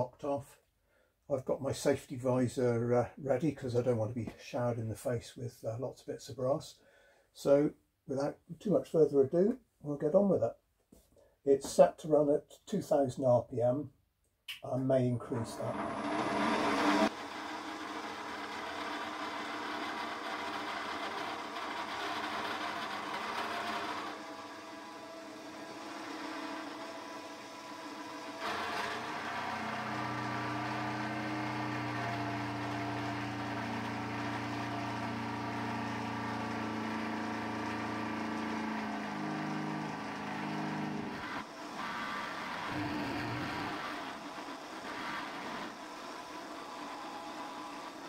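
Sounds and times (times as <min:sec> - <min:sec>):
milling machine humming: 0:15.4 - 0:48.0
deep machine drone: 0:15.5 - 0:17.1.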